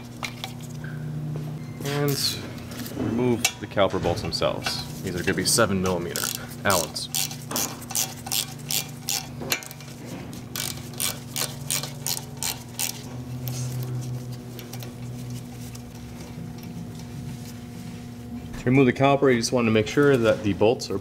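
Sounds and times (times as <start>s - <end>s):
steady low hum: 0.0s - 21.0s
socket ratchet clicking: 6.2s - 9.3s, 10.6s - 13.0s.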